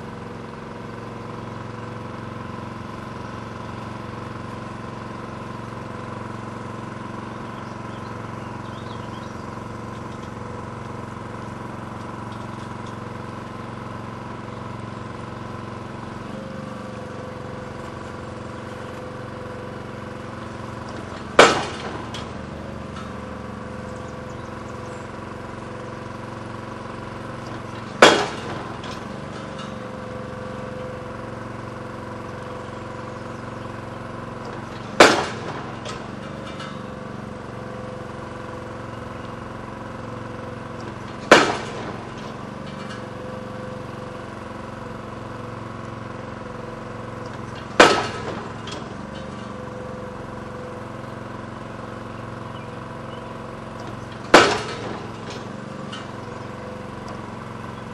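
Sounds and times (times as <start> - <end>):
engine running: 0.0 - 57.9
pile driver hammer striking: 15.0 - 57.9.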